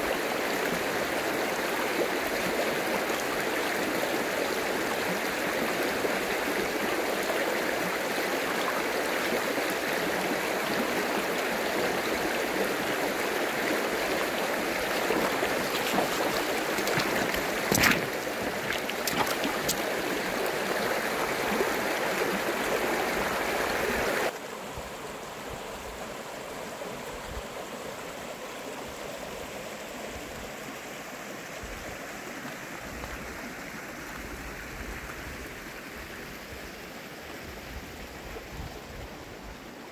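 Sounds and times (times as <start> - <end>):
stream running over stones: 0.0 - 24.4.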